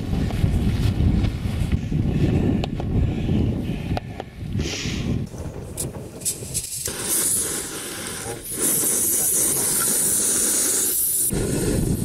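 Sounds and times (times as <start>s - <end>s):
gas stove hissing: 5.8s - 12.0s.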